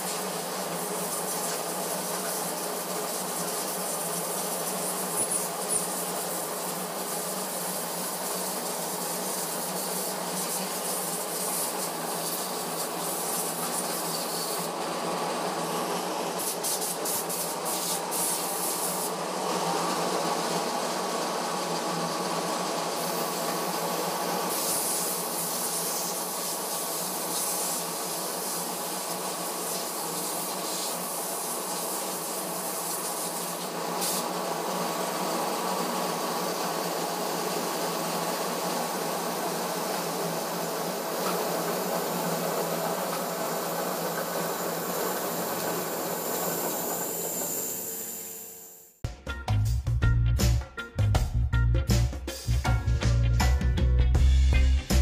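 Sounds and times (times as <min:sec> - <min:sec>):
hiss of fuel spraying: 0:00.0 - 0:14.8, 0:16.4 - 0:19.2, 0:23.0 - 0:38.0, 0:38.6 - 0:48.4
pump test bench whirring: 0:00.0 - 0:49.0.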